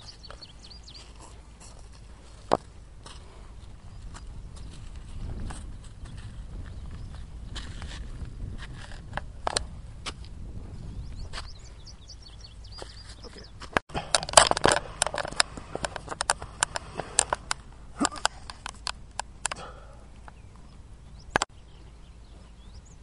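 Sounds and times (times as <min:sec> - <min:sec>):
hands and body scraping on asphalt: 0:00.0 - 0:10.4, 0:11.2 - 0:20.8
faint bird chirps: 0:10.9 - 0:13.6.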